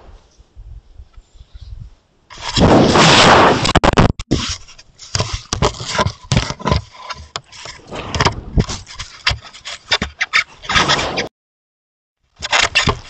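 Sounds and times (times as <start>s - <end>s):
elk scraping against camera: 2.3s - 11.3s, 12.4s - 13.0s.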